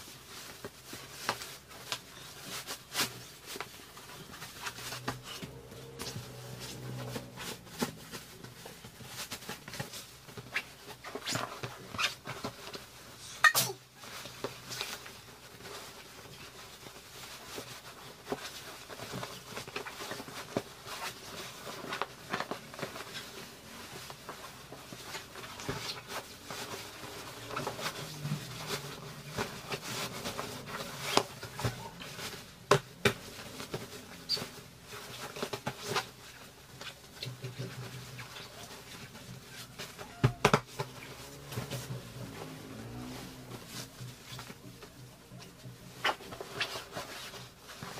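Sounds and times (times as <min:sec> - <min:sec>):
fabric rustling: 0:00.0 - 0:47.9.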